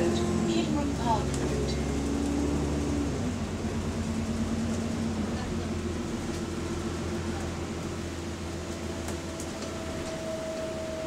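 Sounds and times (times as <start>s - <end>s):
bus engine drone: 0.0s - 11.0s.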